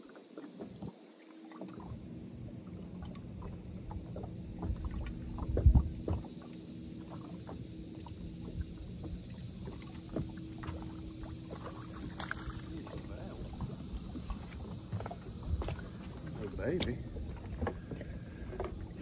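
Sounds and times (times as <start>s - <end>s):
water splashing against hull: 0.0s - 19.0s
thump on boat: 4.5s - 6.3s, 7.1s - 19.0s.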